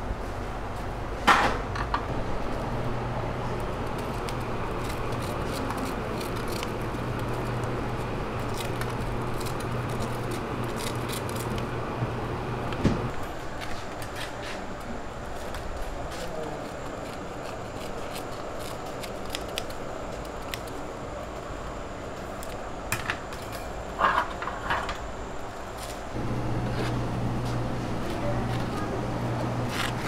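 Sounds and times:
low hum of equipment: 0:00.0 - 0:30.0
utensils clicking and tapping: 0:03.6 - 0:07.8.

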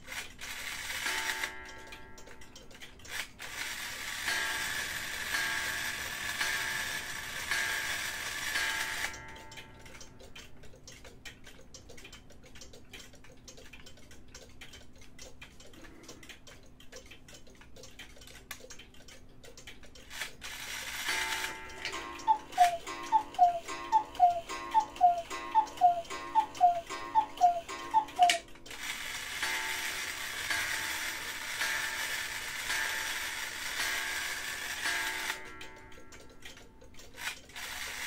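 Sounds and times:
clock striking train whirring: 0:00.0 - 0:10.3, 0:20.1 - 0:38.0
clock movement clicking and ticking: 0:00.0 - 0:38.0.

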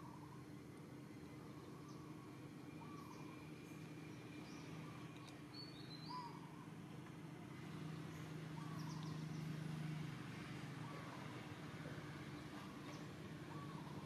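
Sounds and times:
low steady hum: 0:00.0 - 0:14.0
bird chirps: 0:01.1 - 0:06.6, 0:08.1 - 0:09.6.

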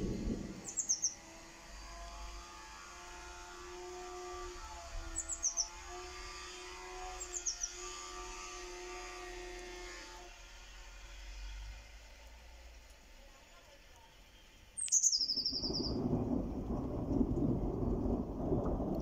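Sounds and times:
songbird chirping: 0:00.0 - 0:01.3, 0:05.2 - 0:05.8, 0:07.2 - 0:07.9, 0:13.3 - 0:16.4.

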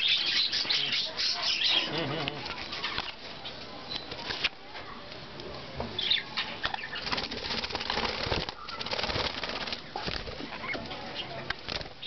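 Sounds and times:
birds flapping wings: 0:06.8 - 0:12.0.

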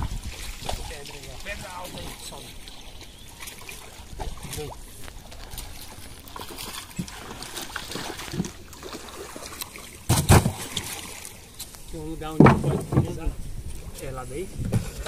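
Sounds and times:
small knocks and splashes: 0:00.0 - 0:13.9
water trickling and sloshing: 0:00.0 - 0:15.0
heavy thump: 0:12.4 - 0:13.3.

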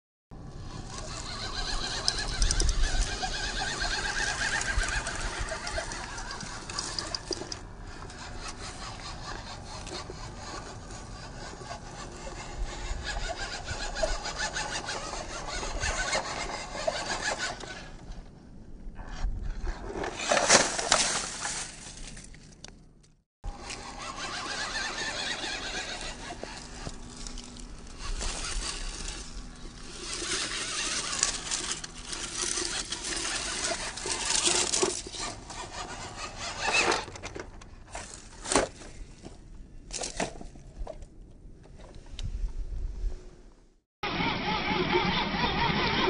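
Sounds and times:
small electric motor whining: 0:00.5 - 0:18.0, 0:23.5 - 0:37.2, 0:44.0 - 0:46.0
toy car crashing in leaves: 0:01.0 - 0:07.4, 0:19.9 - 0:22.5, 0:23.6 - 0:37.1
tyres crackling over leaves: 0:20.2 - 0:22.8, 0:23.6 - 0:36.0.

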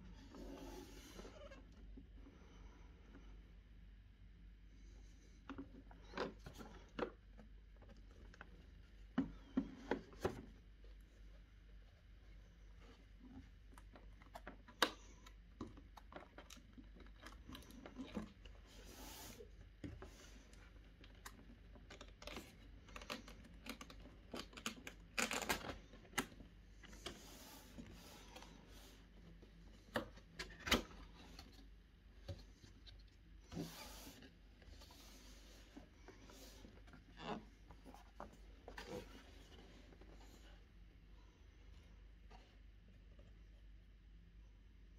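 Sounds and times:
cardboard scraping and sliding: 0:33.4 - 0:36.6.

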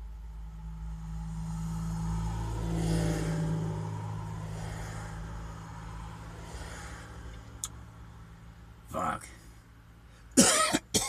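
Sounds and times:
steady low hum: 0:00.0 - 0:11.0
vehicle passing by: 0:00.2 - 0:08.8.

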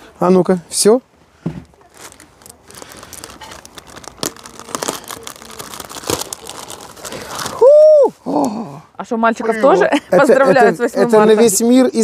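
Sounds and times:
plastic bag rustling: 0:01.7 - 0:07.7.

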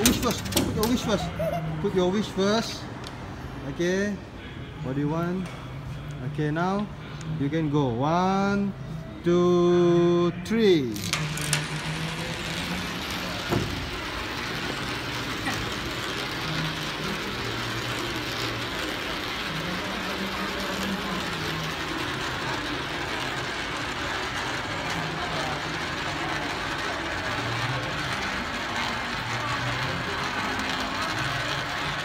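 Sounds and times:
coin rolling in spiral funnel: 0:10.8 - 0:32.0.

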